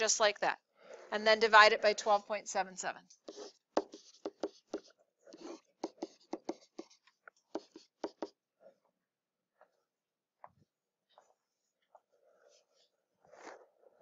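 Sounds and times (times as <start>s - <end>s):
stylus ticking and scraping: 3.1s - 8.9s.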